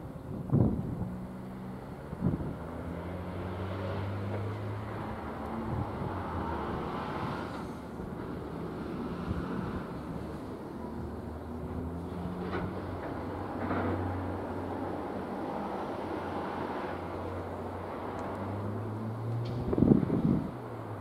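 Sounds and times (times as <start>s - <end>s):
distant engine hum: 0.0s - 21.0s
wind buffeting microphone: 0.2s - 1.3s, 2.1s - 2.7s, 5.6s - 7.3s, 19.6s - 20.8s.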